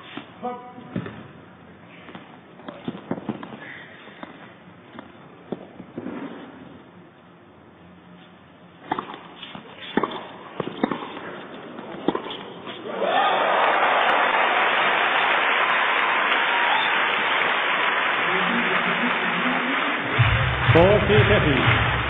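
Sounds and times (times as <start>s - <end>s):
tennis ball strikes and bounces: 2.1s - 3.6s, 8.8s - 12.8s
crowd applause: 12.9s - 22.0s.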